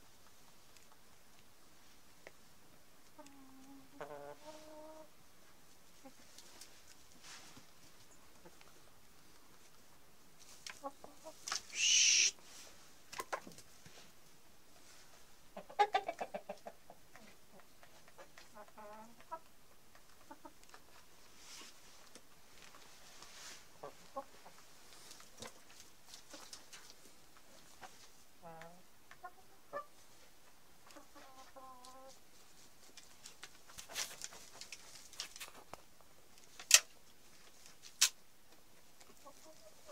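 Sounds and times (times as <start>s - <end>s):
chicken clucking: 3.1s - 5.1s, 5.9s - 7.0s, 7.8s - 9.8s, 10.5s - 12.4s, 15.1s - 21.7s, 23.7s - 35.8s, 39.0s - 39.9s
chicken squawk: 11.2s - 12.4s.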